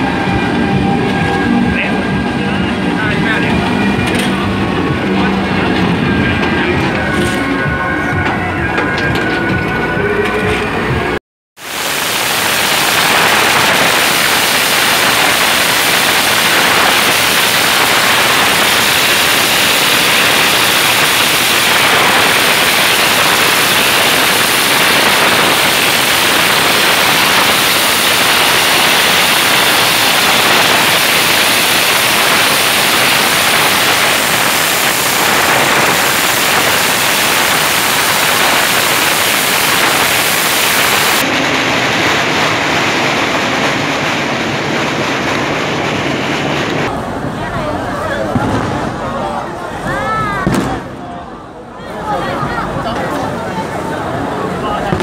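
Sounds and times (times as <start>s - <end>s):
firecrackers crackling: 11.6s - 55.0s.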